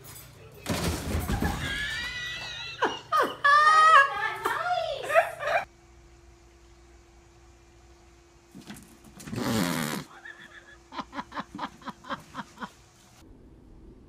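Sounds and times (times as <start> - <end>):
person laughing: 2.4 - 5.7, 9.5 - 12.9.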